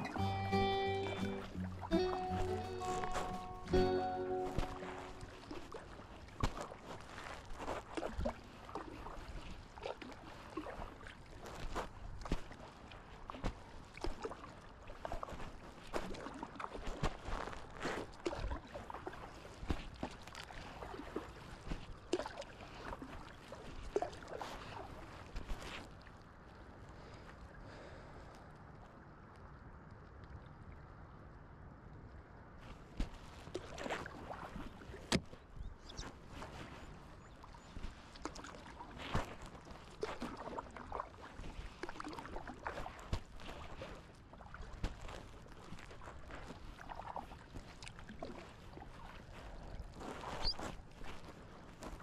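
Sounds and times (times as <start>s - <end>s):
water splash: 0.0s - 11.1s, 37.4s - 45.2s
paddle dipping through water: 0.0s - 52.0s
water splashing and lapping: 0.0s - 52.0s.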